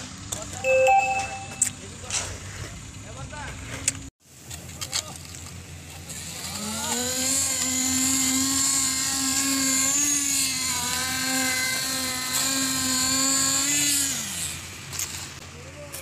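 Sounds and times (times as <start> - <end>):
small engine droning whine: 5.1 - 15.9.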